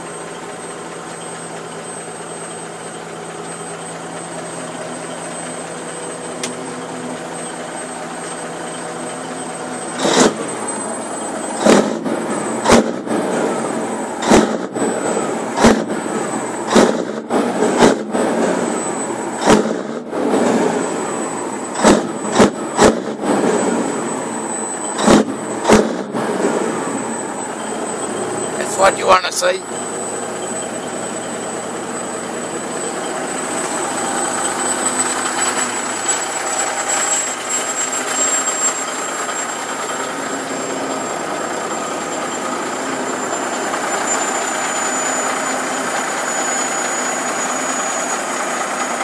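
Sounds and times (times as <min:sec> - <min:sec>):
diesel truck engine idling and revving: 0:00.0 - 0:49.0.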